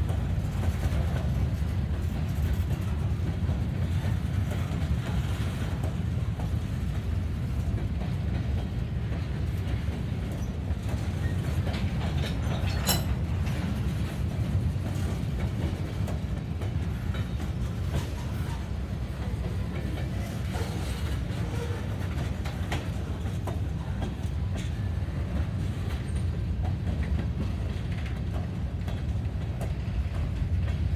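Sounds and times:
steel wheels rumbling on rail: 0.0 - 30.9.

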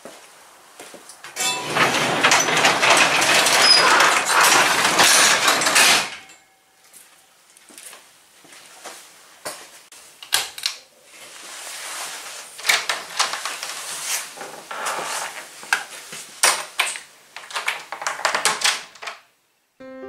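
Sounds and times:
rustling: 11.0 - 16.4.

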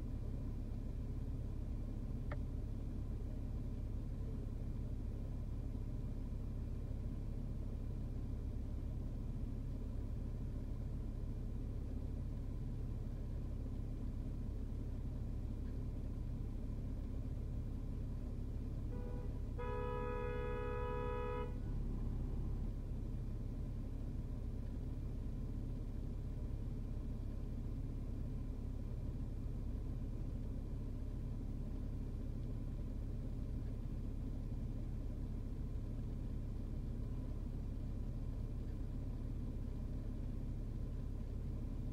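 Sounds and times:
idling traffic rumble: 0.0 - 41.9
car horn blaring: 18.9 - 21.7.

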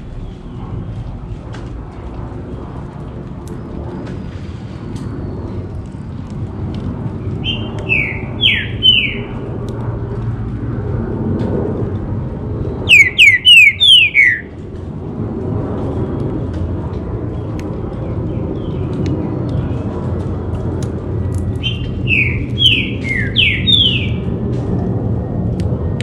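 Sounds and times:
steady low rumble: 0.0 - 26.0
bird whistling downward notes: 7.4 - 9.4, 12.8 - 14.5, 21.6 - 24.2.

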